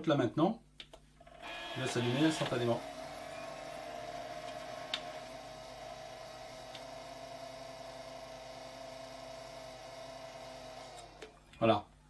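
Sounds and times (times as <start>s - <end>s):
computer fans humming: 1.5s - 11.6s.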